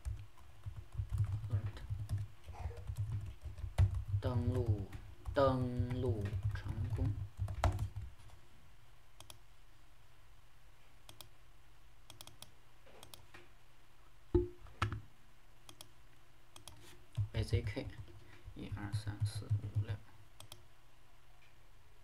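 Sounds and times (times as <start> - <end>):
faint low hum: 0.0 - 22.0
mouse and keyboard clicks: 12.1 - 13.4, 16.6 - 17.3.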